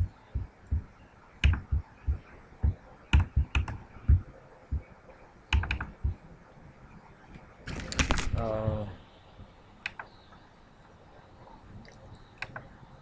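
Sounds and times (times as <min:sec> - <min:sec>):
computer mouse and keyboard clicks: 0:01.4 - 0:01.7, 0:03.1 - 0:03.8, 0:05.5 - 0:06.0.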